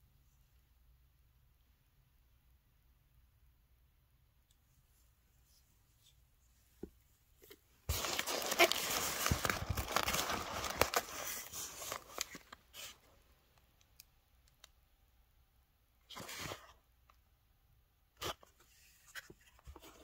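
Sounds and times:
bubble wrap crinkling: 7.4s - 13.2s.

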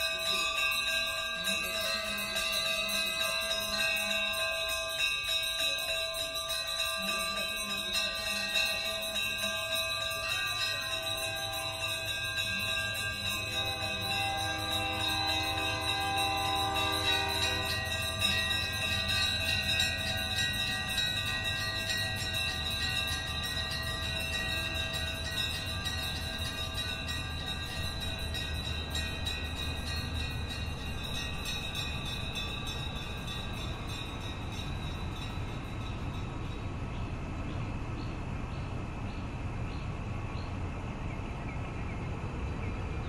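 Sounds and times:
bells ringing: 0.0s - 37.4s
freight train rolling past: 0.0s - 43.0s
sustained high tones: 7.7s - 36.8s.

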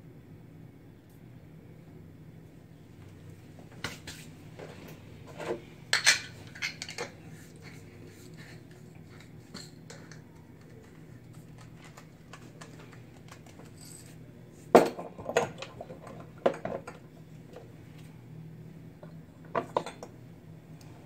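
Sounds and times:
kitchenware clinking: 5.3s - 7.2s, 19.5s - 20.1s.

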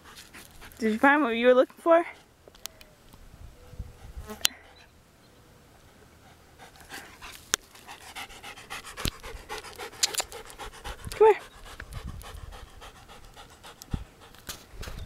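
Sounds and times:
dog panting quickly: 0.0s - 1.2s, 5.9s - 15.0s
sharp clicks: 9.0s - 10.6s.

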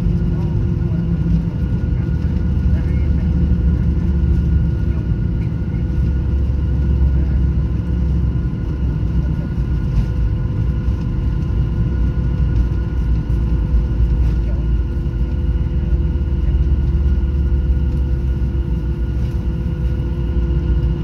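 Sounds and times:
faint steady engine whine: 0.0s - 21.0s
jet engine low rumble: 0.0s - 21.0s.

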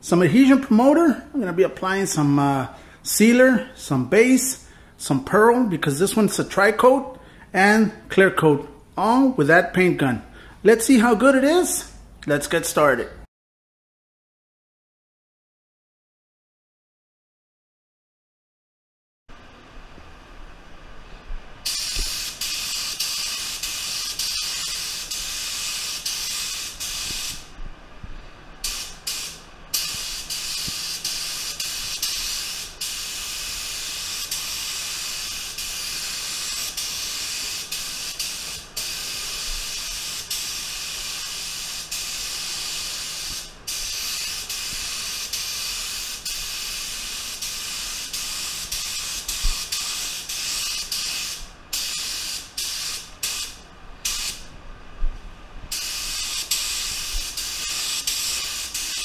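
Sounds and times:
spray gun hissing: 21.6s - 27.5s, 28.6s - 54.5s, 55.7s - 59.0s.

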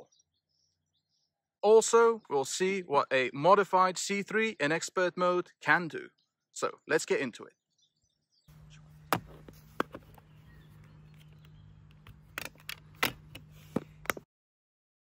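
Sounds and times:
steady low hum: 8.5s - 14.2s
plastic case clicks and clatter: 9.1s - 14.2s.

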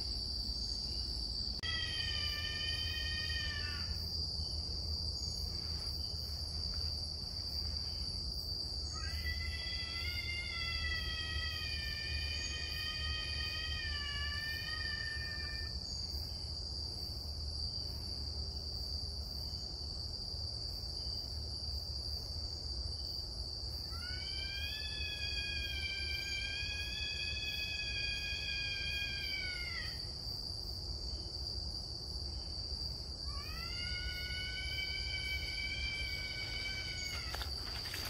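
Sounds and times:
high insect drone: 0.0s - 38.0s
animal wailing cry: 1.6s - 4.0s, 33.3s - 38.0s.

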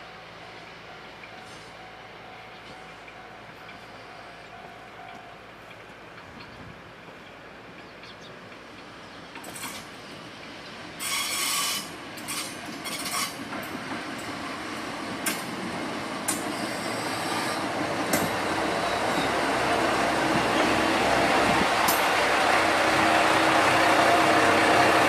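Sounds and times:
railcar pulling into station: 0.0s - 25.0s
short high squeals: 11.0s - 13.4s.

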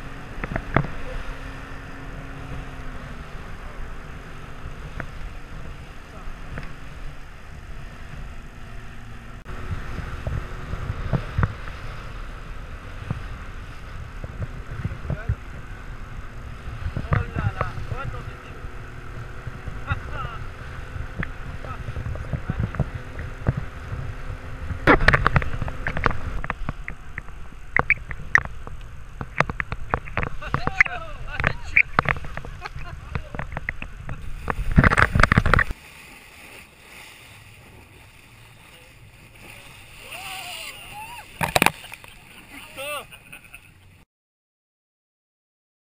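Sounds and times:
hull thumping on waves: 0.0s - 43.9s
water rushing along hull: 0.0s - 44.0s
wind buffeting microphone: 9.4s - 19.9s, 20.6s - 36.9s
wind buffeting: 20.7s - 43.5s.

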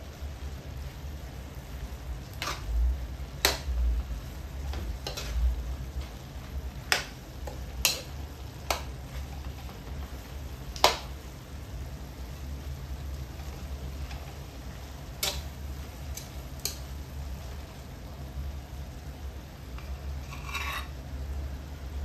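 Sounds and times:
food sizzling in a wok: 0.0s - 22.0s
steady low hum: 0.0s - 22.0s
metal ladle scraping and knocking pan: 4.7s - 5.5s, 19.8s - 20.9s.

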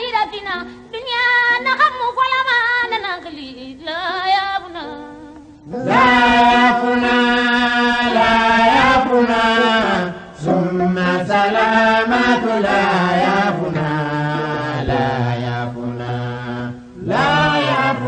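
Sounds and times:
person chanting devotional song: 4.6s - 18.0s.

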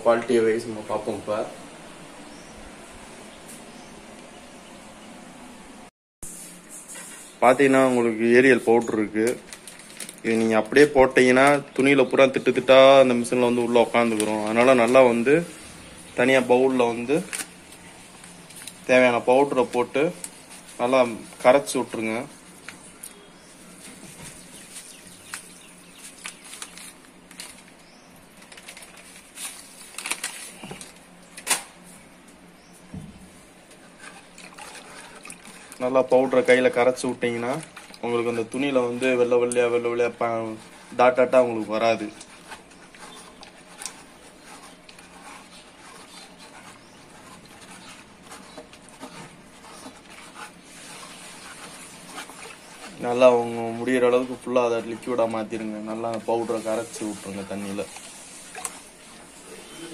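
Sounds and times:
plastic sachet crinkling: 9.2s - 11.5s, 25.2s - 31.1s.

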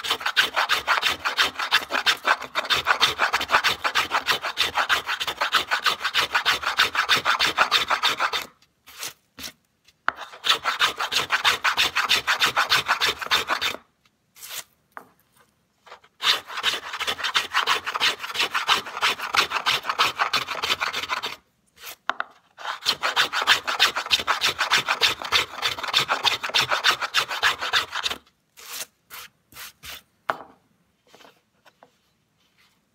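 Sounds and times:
hand plane shaving wood: 0.0s - 8.5s, 10.2s - 13.8s, 16.2s - 21.4s, 22.6s - 28.8s.

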